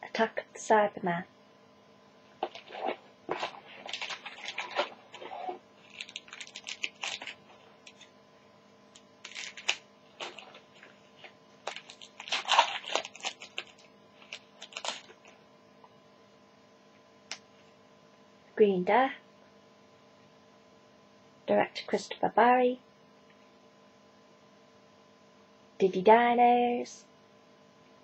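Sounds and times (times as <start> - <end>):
wrapper tearing and crinkling: 2.5 - 8.1, 9.0 - 15.3.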